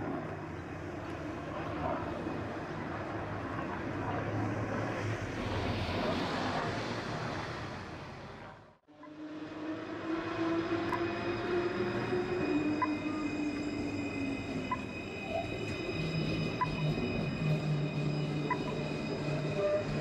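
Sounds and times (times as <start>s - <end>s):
aircraft flying over: 0.0s - 13.1s.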